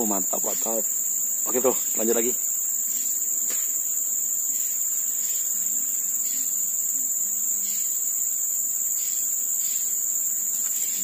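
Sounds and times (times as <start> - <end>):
high-pitched insect chorus: 0.0 - 11.0.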